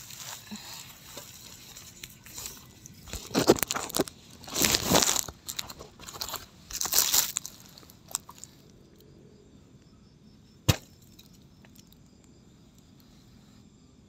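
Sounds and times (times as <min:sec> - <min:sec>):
sleeping bag rustling: 0:00.0 - 0:08.5
sharp knock: 0:10.7 - 0:11.0.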